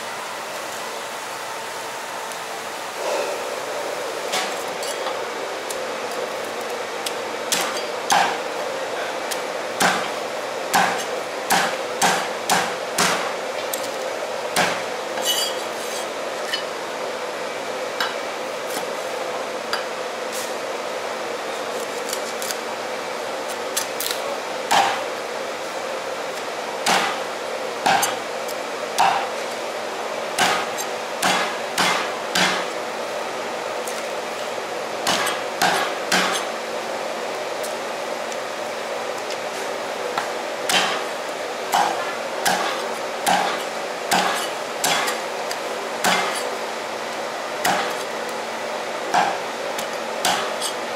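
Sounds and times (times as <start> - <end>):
steady background hum: 0.0 - 50.9
cleaver chopping on wooden block: 30.4 - 32.6, 47.6 - 48.0.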